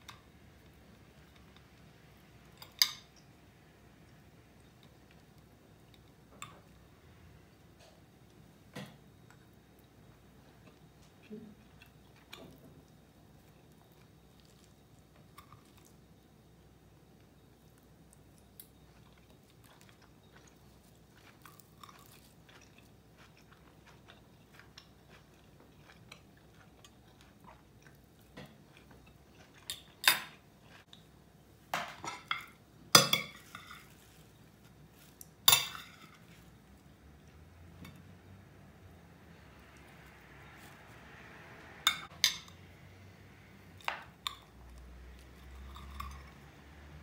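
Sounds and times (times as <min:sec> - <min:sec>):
quiet chewing: 0:10.5 - 0:16.0, 0:17.2 - 0:31.1.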